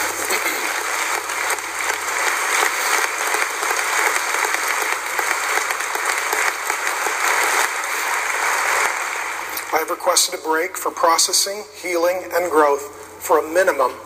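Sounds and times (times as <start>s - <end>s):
congregation applauding: 0.0s - 10.8s.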